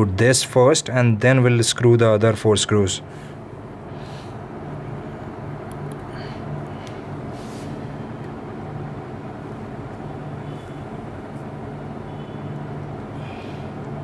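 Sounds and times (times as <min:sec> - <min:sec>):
low background hum: 0:00.0 - 0:14.0.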